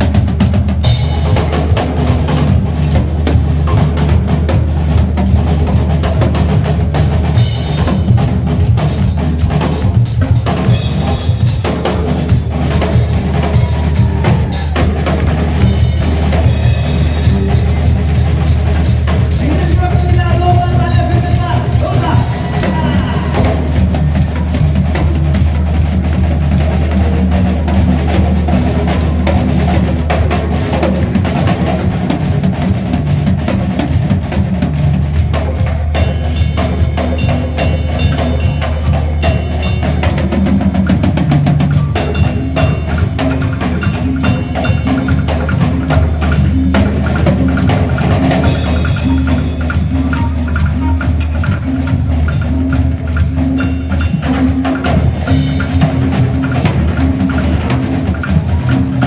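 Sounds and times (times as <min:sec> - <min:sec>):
drum kit solo: 0:00.0 - 0:59.0.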